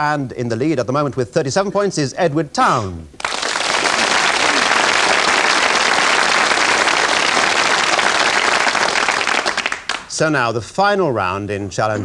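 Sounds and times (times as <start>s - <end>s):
audience applauding: 3.2s - 10.1s.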